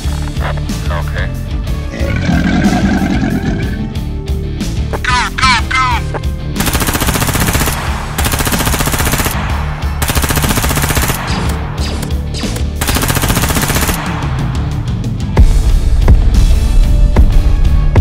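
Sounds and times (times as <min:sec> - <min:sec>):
machine gun firing bursts: 0:06.6 - 0:11.6, 0:12.8 - 0:14.4.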